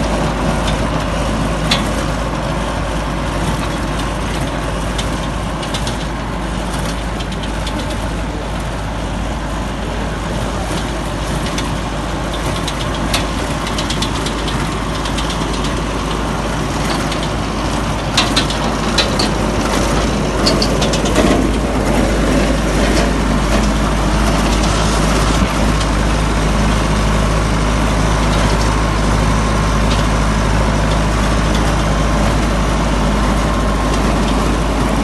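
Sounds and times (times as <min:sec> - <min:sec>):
tractor engine and rotor drone: 0:00.0 - 0:35.0
rattling clicks: 0:10.7 - 0:25.9.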